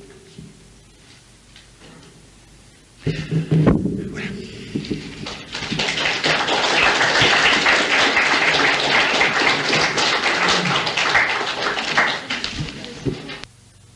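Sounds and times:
audience applauding: 0:05.2 - 0:13.4.

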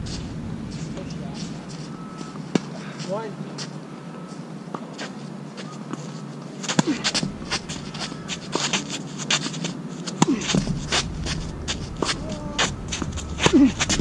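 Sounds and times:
shoes squeaking on court: 0:00.7 - 0:14.0
racket striking ball: 0:10.2 - 0:14.0.

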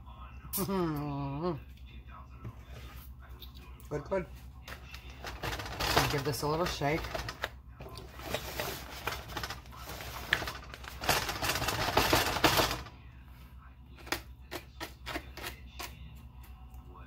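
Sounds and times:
foil pan rattling: 0:05.1 - 0:07.5, 0:08.2 - 0:12.9.

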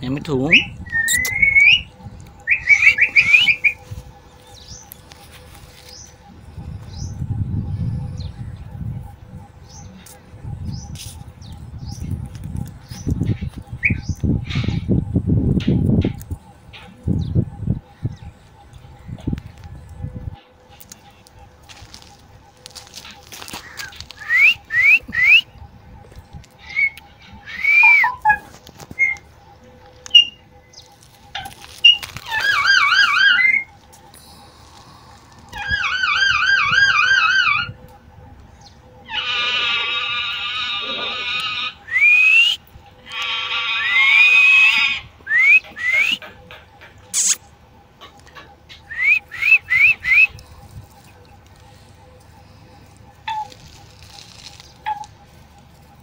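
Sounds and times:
parakeets whistling and calling: 0:00.4 - 0:04.9, 0:23.4 - 0:25.6, 0:26.6 - 0:29.3, 0:30.0 - 0:33.7, 0:38.6 - 0:47.4, 0:48.7 - 0:51.0.

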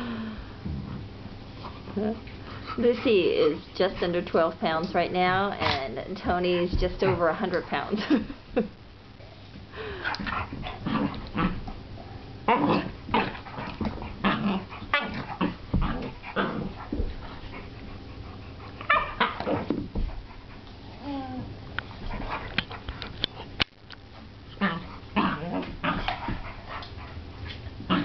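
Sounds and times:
dogs play vocalizing: 0:10.0 - 0:23.6, 0:24.2 - 0:28.0.

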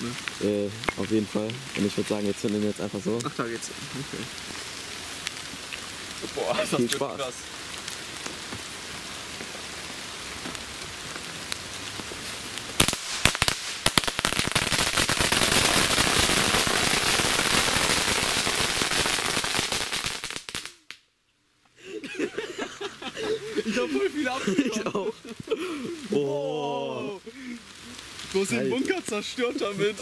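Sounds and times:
firecrackers banging: 0:12.7 - 0:20.8.

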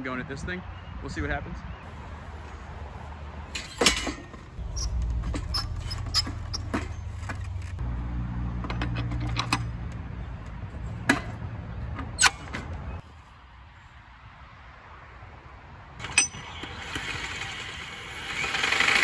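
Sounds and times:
metal clanks and clicks: 0:03.5 - 0:07.8, 0:08.6 - 0:10.0
steady low rumble: 0:04.6 - 0:08.2.

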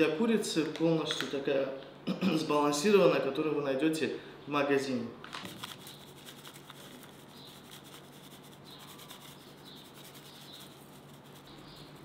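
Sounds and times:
packet rustling: 0:05.3 - 0:08.1.

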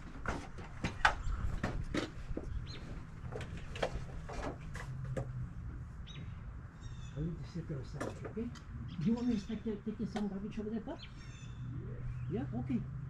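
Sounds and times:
bird chirping: 0:06.0 - 0:08.0, 0:08.6 - 0:12.9.

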